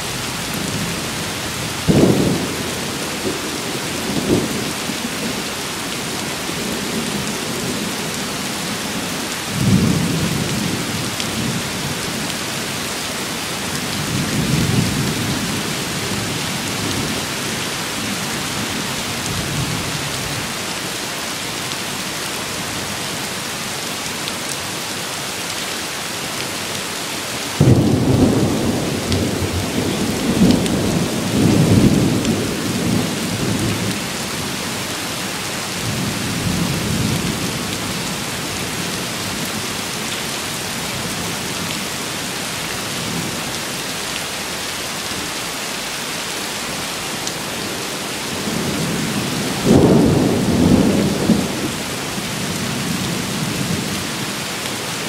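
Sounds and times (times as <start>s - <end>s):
steady rain: 0.0s - 55.0s
rolling thunder: 48.3s - 51.8s
loud thunderclap: 48.4s - 51.7s.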